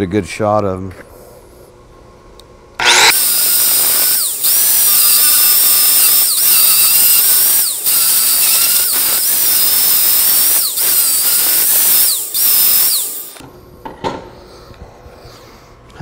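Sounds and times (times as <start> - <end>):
angle grinder grinding steel: 2.8 - 13.4.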